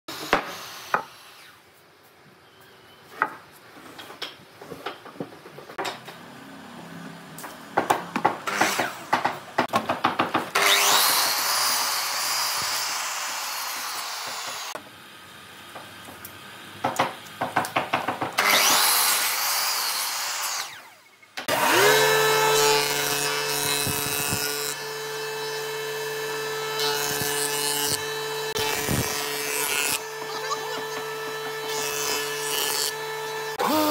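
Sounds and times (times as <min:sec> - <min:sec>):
miter saw cutting wood: 0:00.1 - 0:01.6, 0:10.5 - 0:14.8, 0:18.4 - 0:33.9
wooden beams knocking: 0:09.1 - 0:10.5, 0:16.8 - 0:18.4
jointer motor humming: 0:21.5 - 0:33.9.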